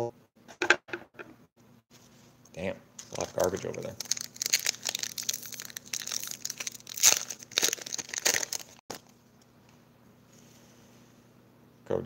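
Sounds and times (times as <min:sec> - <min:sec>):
foil wrapper crinkling and tearing: 0:03.0 - 0:09.1.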